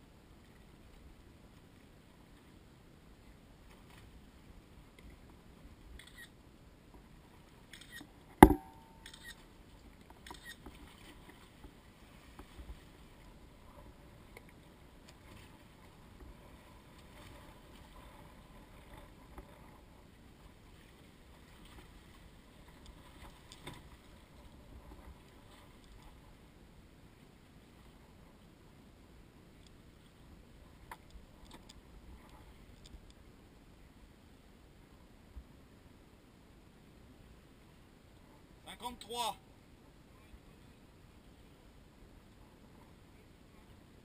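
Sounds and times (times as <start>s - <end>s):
sharp loud knock with ring: 8.4s - 9.0s
faint clicks and small knocks: 22.7s - 26.2s, 30.8s - 33.2s.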